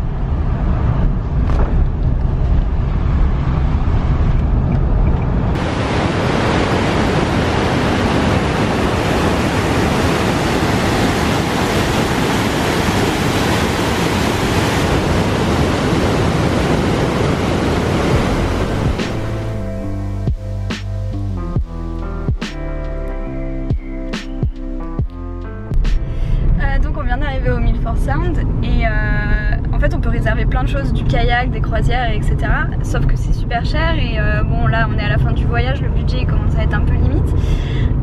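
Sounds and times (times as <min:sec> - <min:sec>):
car driving through tunnel: 0:00.0 - 0:38.0
river rushing over boulders: 0:05.6 - 0:19.6.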